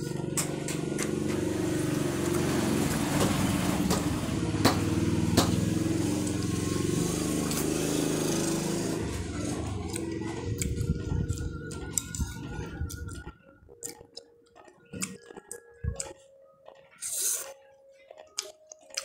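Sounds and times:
engine running: 0.0 - 13.2.

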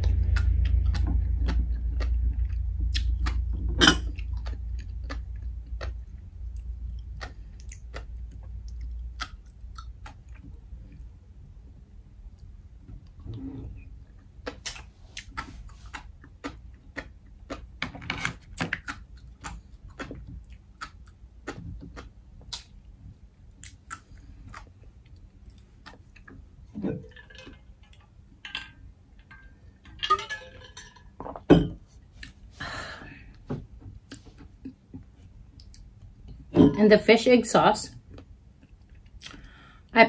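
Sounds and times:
wet chewing and mouth smacks: 0.2 - 11.1, 14.2 - 17.8, 18.8 - 26.5, 34.1 - 36.0, 38.1 - 39.6
mussel shells rattling: 27.1 - 31.2.

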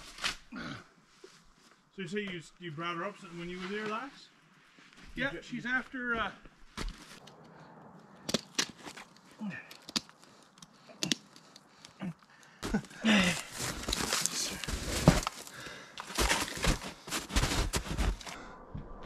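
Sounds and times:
boots shifting on packed snow: 3.2 - 7.2, 12.6 - 18.4
straps rustling and tearing: 12.8 - 18.3.

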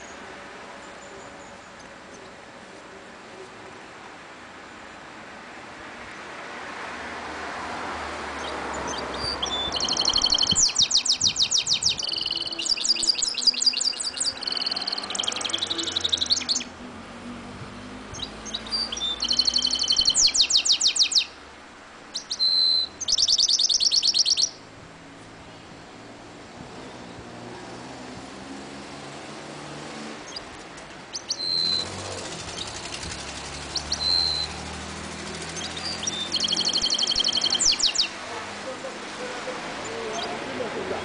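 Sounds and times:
bird singing rattling trills: 8.4 - 16.8, 17.8 - 21.4, 22.0 - 24.6, 30.3 - 30.5, 31.1 - 38.2.

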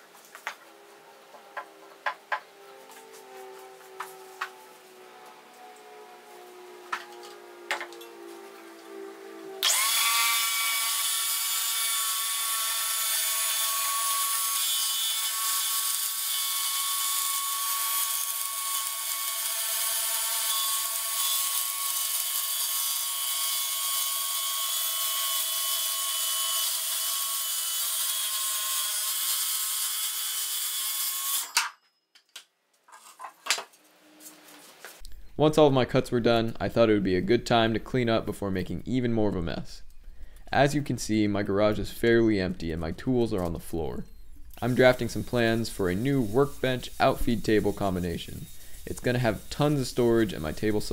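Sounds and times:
circular saw cutting plywood: 0.6 - 31.6, 44.6 - 50.9.

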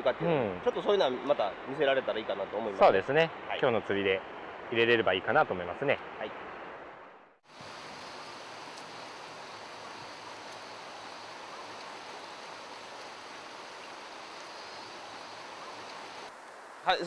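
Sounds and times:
river water rushing over riffles: 7.5 - 17.0.

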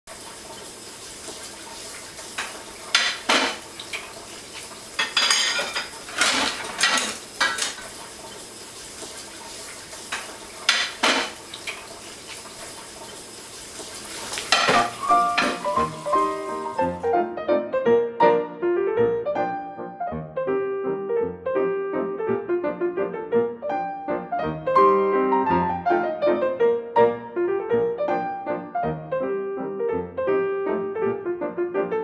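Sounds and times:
running tap hiss: 0.1 - 17.2
dishes and cutlery clattering: 2.4 - 3.6, 5.0 - 7.8, 10.1 - 11.4, 14.4 - 15.8
piano music: 4.8 - 7.7, 14.4 - 32.0.

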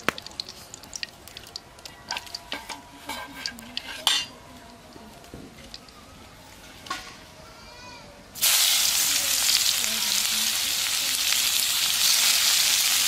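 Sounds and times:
metal dishes and utensils clinking: 2.0 - 4.4.

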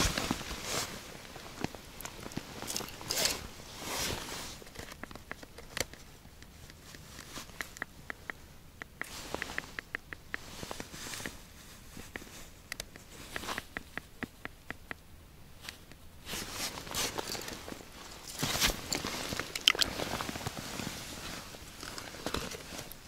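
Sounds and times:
fabric case rustling: 0.0 - 6.1, 16.3 - 23.0
small sharp clicks: 4.7 - 11.4, 12.0 - 16.0.

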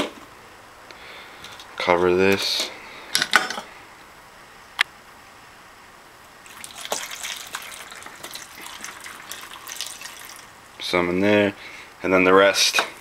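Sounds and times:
water splashing into plastic cup: 6.4 - 10.5.

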